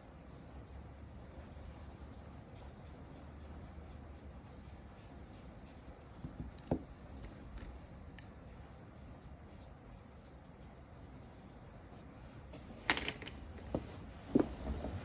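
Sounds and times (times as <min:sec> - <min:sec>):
brush scratching on fingernail: 0:00.1 - 0:06.0, 0:08.8 - 0:10.7.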